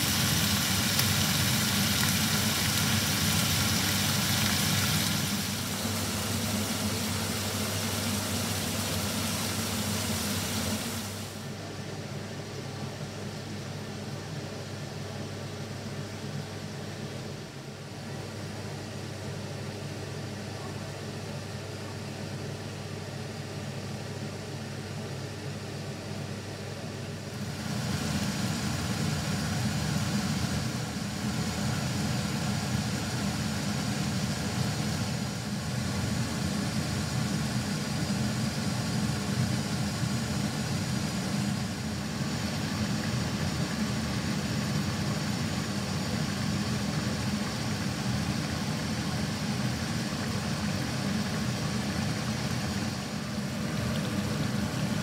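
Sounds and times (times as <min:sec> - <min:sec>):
curry bubbling and sizzling: 0:00.0 - 0:11.2.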